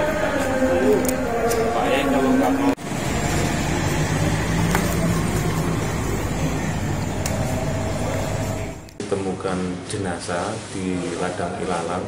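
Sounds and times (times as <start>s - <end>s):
car engine idling: 2.8s - 9.0s.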